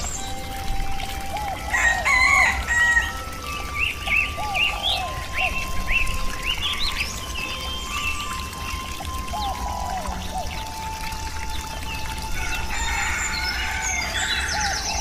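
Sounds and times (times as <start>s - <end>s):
songbirds chirping: 0.0s - 15.0s
rooster crowing: 1.7s - 3.2s, 12.4s - 15.0s.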